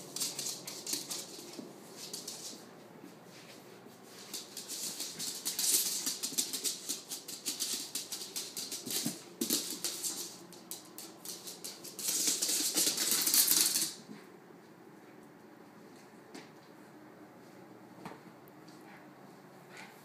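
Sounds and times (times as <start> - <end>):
dog claws clicking on hard floor: 0.0 - 2.7, 4.1 - 14.2.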